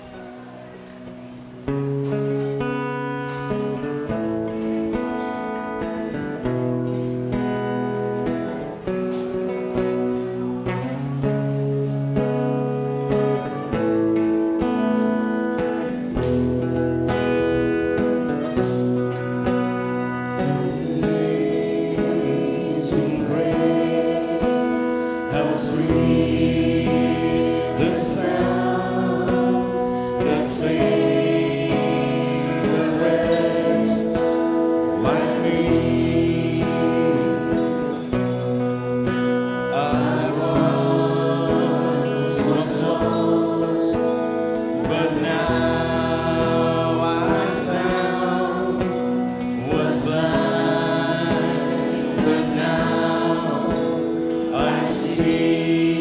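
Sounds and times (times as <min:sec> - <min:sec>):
worship band playing gospel song: 0:00.0 - 0:56.0
man singing lead: 0:20.3 - 0:38.2, 0:39.4 - 0:56.0
women singing backing vocals: 0:20.4 - 0:38.3, 0:39.6 - 0:56.0.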